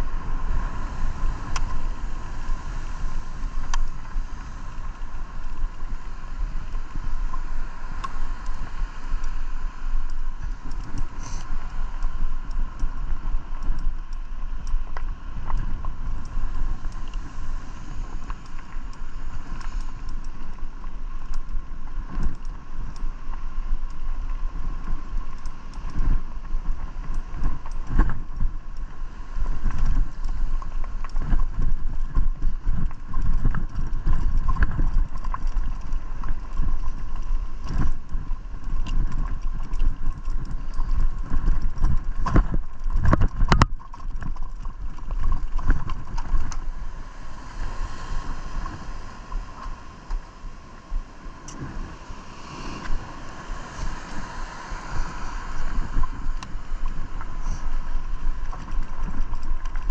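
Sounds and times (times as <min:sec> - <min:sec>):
wind on microphone: 0:00.0 - 0:59.9
bike rattling and knocking: 0:20.0 - 0:24.1, 0:24.8 - 0:29.0, 0:29.6 - 0:46.7, 0:58.4 - 0:59.9
bike tyres crunching on gravel: 0:26.0 - 0:49.9.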